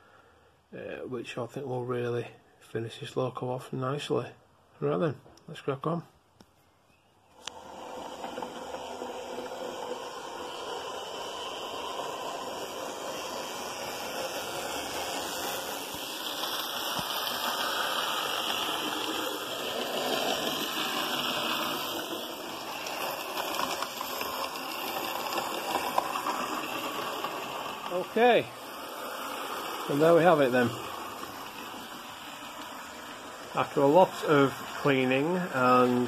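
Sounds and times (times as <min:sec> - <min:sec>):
model train motor whirring: 0:07.4 - 0:36.0
wheels rattling on rails: 0:07.6 - 0:36.0.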